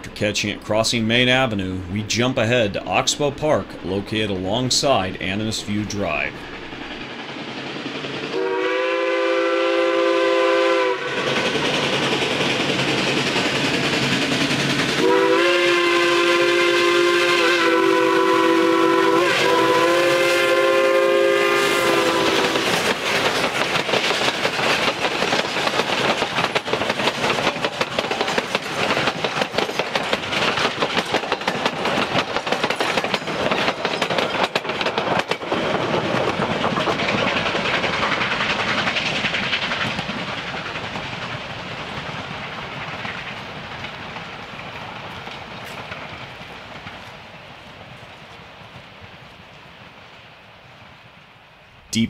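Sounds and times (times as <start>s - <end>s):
train wheels clicking over rail joints: 0.0s - 16.2s, 17.4s - 49.4s
steam locomotive chime whistle: 8.3s - 11.3s, 15.0s - 22.6s.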